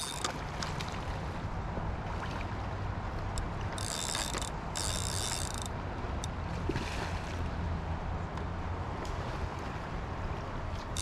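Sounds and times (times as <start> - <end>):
fishing reel drag buzzing: 0.0 - 0.7, 3.3 - 5.8.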